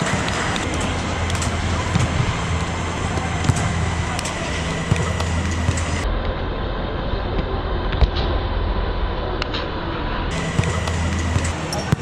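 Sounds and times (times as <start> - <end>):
indistinct voices: 0.0 - 6.1, 10.2 - 12.0
ventilation fans humming: 0.0 - 7.8, 10.3 - 12.0.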